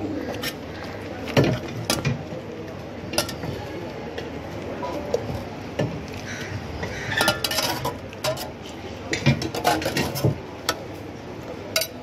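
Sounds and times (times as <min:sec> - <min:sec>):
steel ladle clinking on pots: 0:07.1 - 0:10.8, 0:11.7 - 0:12.0.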